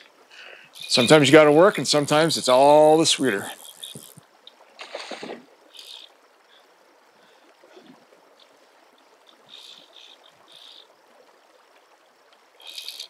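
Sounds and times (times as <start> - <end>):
running river water: 0.0 - 13.0
fishing reel ratchet buzzing: 0.8 - 1.2, 2.1 - 4.2, 12.6 - 13.0
water splash: 4.8 - 5.5.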